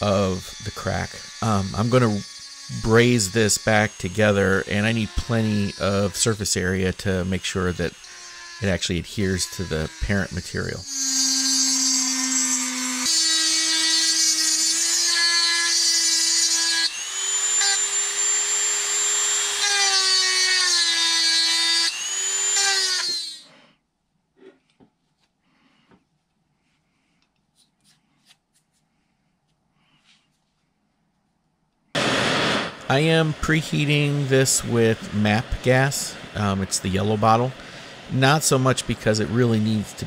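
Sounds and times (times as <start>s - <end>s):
rotary tool grinding metal: 0.0s - 23.5s.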